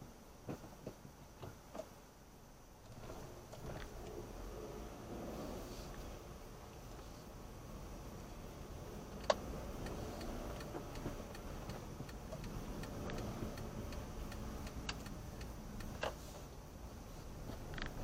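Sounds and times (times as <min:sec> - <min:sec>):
engine and road rumble: 0:00.0 - 0:18.0
turn indicator ticking: 0:09.0 - 0:16.2.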